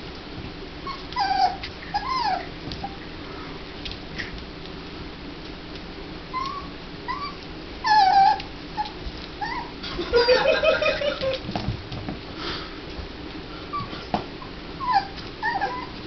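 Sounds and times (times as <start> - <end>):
puppy whimpering: 0.8 - 3.0, 6.3 - 10.5, 13.7 - 16.0.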